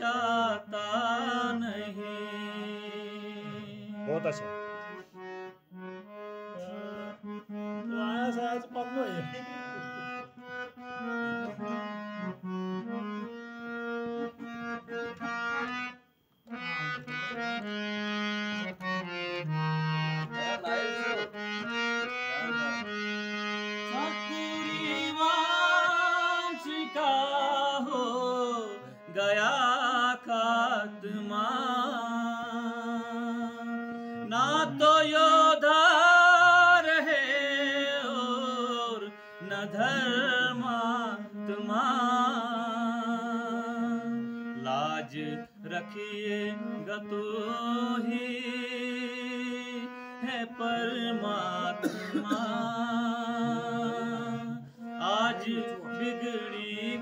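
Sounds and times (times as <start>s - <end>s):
man singing: 0.0s - 4.6s, 6.6s - 13.0s, 23.7s - 57.0s
harmonium playing a melody: 0.0s - 57.0s.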